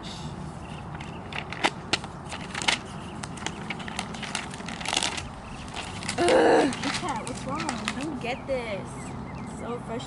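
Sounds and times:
loose papers rustling: 0.5s - 8.4s
book pages turning: 0.7s - 8.2s.

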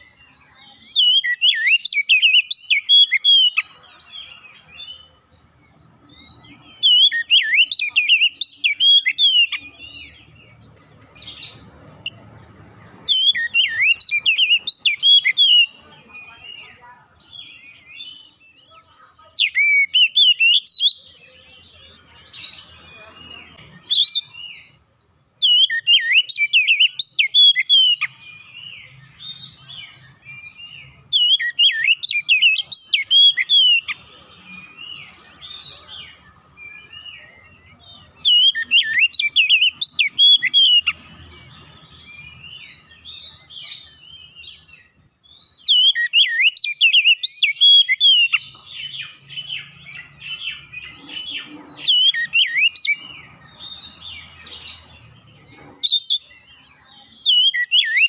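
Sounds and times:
bird singing whistled phrases: 0.0s - 3.6s, 6.8s - 9.8s, 13.1s - 18.4s, 19.4s - 21.2s, 25.4s - 34.0s, 38.2s - 41.0s, 42.2s - 50.7s, 51.8s - 53.0s, 57.2s - 58.0s
soft bird twittering: 0.0s - 58.0s.

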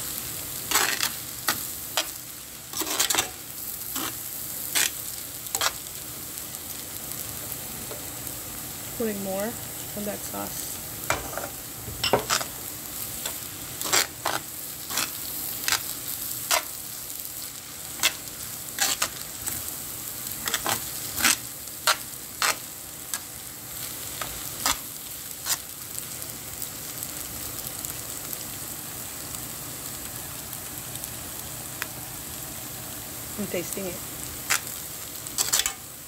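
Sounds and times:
noodles sizzling in pan: 0.0s - 36.0s
metal tongs clacking on pan: 35.4s - 35.8s.

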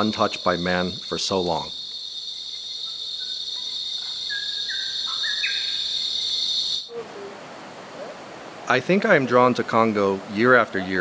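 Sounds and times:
insects droning: 0.0s - 11.0s
bird whistling: 2.9s - 7.3s.

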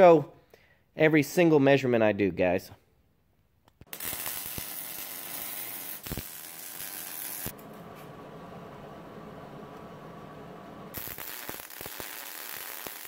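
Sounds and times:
welder arc crackling and hissing: 3.8s - 13.0s
faint steady hum: 7.5s - 11.0s.

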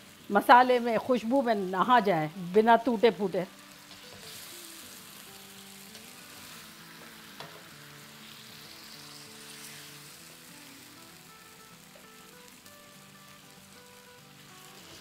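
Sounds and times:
chicken sizzling in a frying pan: 0.0s - 15.0s
faint background music: 0.0s - 15.0s
spatula stirring in pan: 5.5s - 10.2s.

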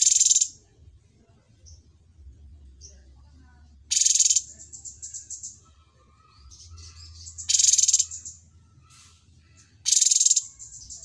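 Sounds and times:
soft twittering chirps: 0.0s - 0.6s, 3.9s - 8.5s, 9.6s - 11.0s.

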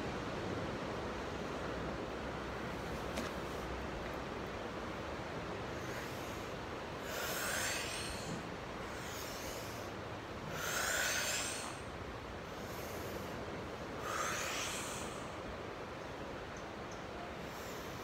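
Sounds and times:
woman breathing through mouth: 5.8s - 11.9s, 14.0s - 15.4s.

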